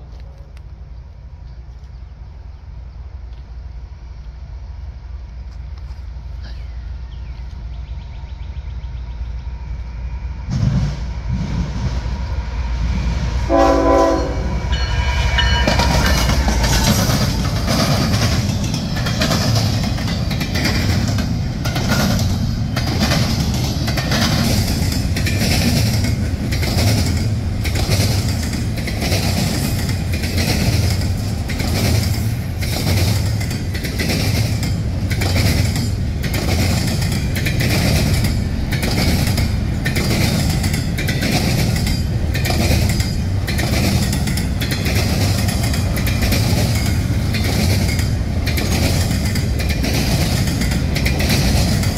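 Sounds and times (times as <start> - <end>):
locomotive horn blast: 13.4 - 16.9
train wheels clacking on rails: 13.5 - 51.9.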